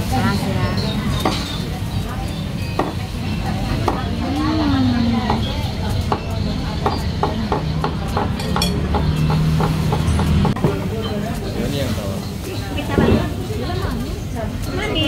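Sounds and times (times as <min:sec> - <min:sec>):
murmur of voices: 0:00.0 - 0:15.0
cutlery clinking on plates: 0:07.8 - 0:11.2.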